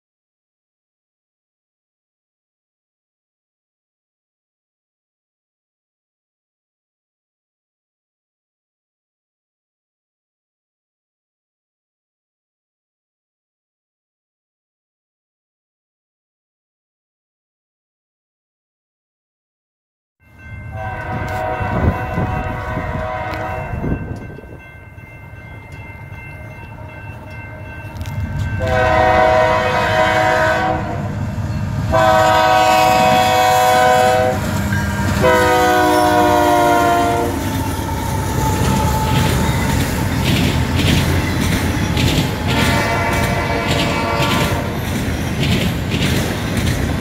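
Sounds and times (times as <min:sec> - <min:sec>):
train horn blasts: 0:20.7 - 0:24.1, 0:26.7 - 0:40.2, 0:42.3 - 0:44.8
diesel locomotive rumble: 0:20.7 - 0:47.0
train wheels clattering: 0:36.5 - 0:47.0.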